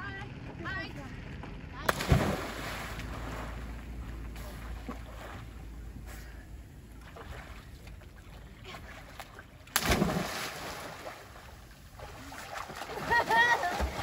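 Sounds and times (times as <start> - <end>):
person splashing into water: 1.9 - 3.7, 9.7 - 14.0.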